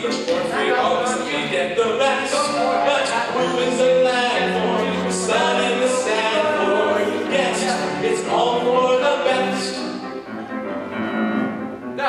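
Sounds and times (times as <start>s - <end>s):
two men singing: 0.0s - 10.0s
musical accompaniment: 0.0s - 12.0s.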